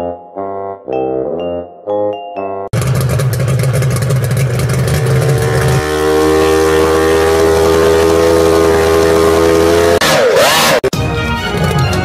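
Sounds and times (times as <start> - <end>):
propeller churning water: 2.7 - 10.0
model powerboat motor running: 2.8 - 9.6.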